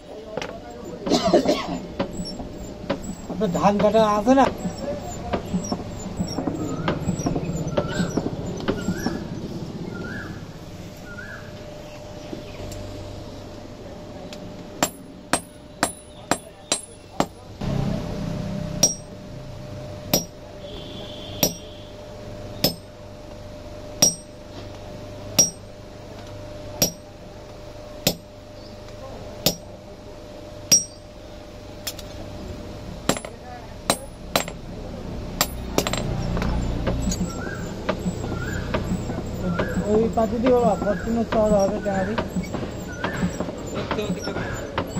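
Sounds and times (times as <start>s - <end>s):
hammer striking iron on anvil: 14.8s - 17.4s, 18.8s - 19.2s, 20.1s - 20.4s, 21.4s - 21.8s, 22.6s - 22.9s, 24.0s - 24.4s, 25.4s - 25.7s, 26.8s - 27.1s, 28.0s - 28.3s, 29.4s - 29.7s, 30.7s - 31.0s, 33.1s - 34.6s, 35.4s - 36.2s.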